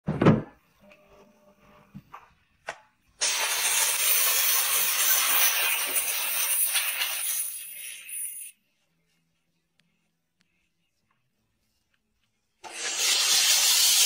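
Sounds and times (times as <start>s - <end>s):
steam nozzle hissing: 3.2s - 8.5s, 12.6s - 14.0s.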